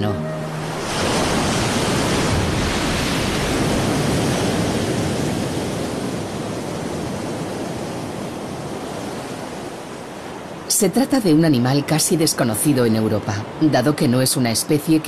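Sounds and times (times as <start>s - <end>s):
surf breaking over rocks: 0.7s - 9.6s.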